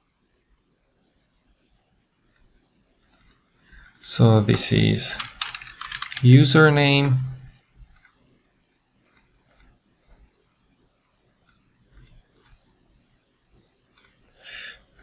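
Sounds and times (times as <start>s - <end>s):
computer mouse clicking: 2.4s - 4.1s, 5.2s - 6.2s, 7.9s - 8.2s, 9.0s - 10.3s, 11.5s - 12.6s, 14.0s - 14.2s.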